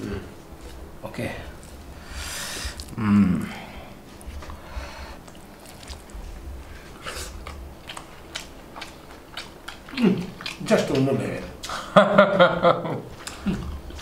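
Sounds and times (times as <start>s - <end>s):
people chewing: 0.0s - 14.0s
mouth clicks and smacks: 5.2s - 6.2s, 7.0s - 11.8s.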